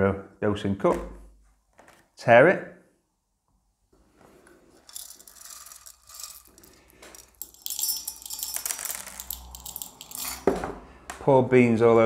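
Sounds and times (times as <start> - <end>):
coffee beans clattering on metal: 4.8 - 10.5.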